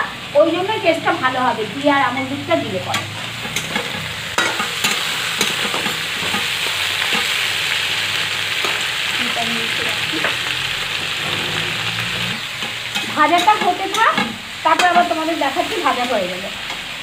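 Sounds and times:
vegetables sizzling in a pan: 0.0s - 17.0s
metal spatula scraping a pan: 2.8s - 7.8s, 10.1s - 16.8s.

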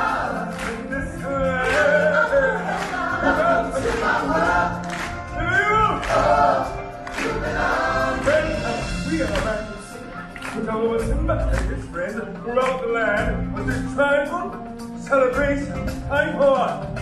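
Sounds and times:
singer and choir singing: 0.0s - 10.7s.

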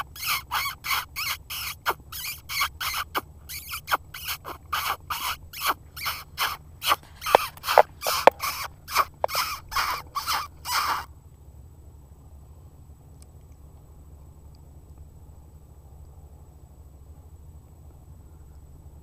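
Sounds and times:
predator call raspy squalls: 0.0s - 11.1s.

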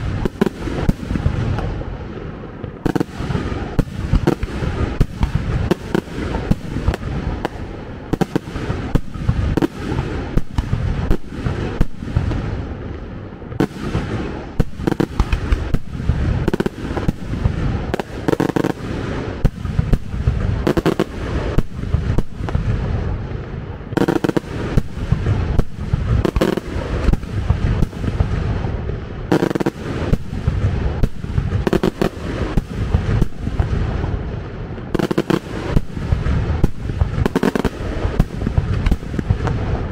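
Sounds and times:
fireworks bangs: 0.0s - 39.9s.

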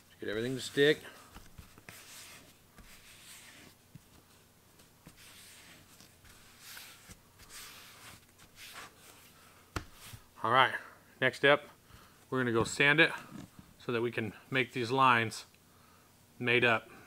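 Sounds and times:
palms rubbing leather: 0.3s - 10.3s.

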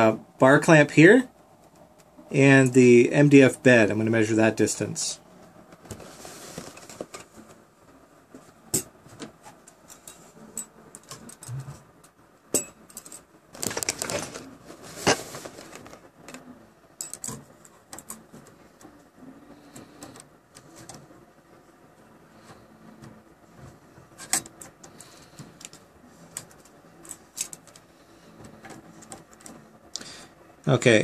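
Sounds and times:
rustling scrape: 5.9s - 7.6s, 13.6s - 16.1s.

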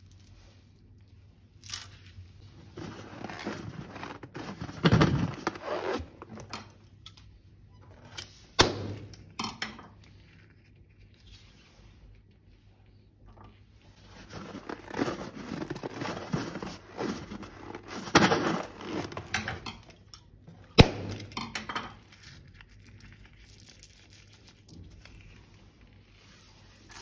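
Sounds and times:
slime squishing and crinkling: 1.4s - 6.2s, 14.0s - 19.5s.

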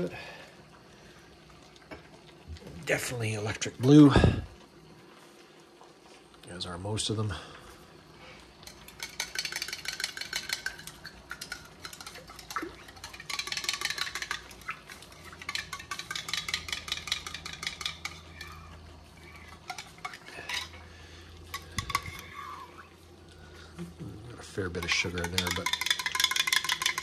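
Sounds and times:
spoon clinking in a cup: 24.8s - 27.0s.

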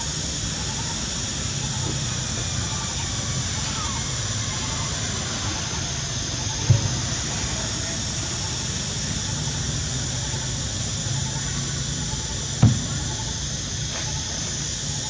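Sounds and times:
even hiss: 0.0s - 15.0s
short thumps: 12.6s - 13.2s.

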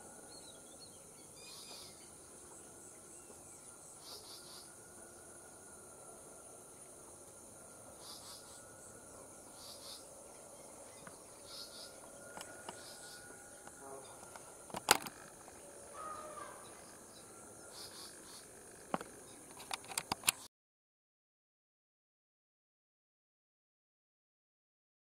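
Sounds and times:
high-pitched insect drone: 0.0s - 20.1s
insect chirping pulses: 0.0s - 20.4s
sharp clicks: 13.6s - 15.6s, 18.9s - 20.5s.

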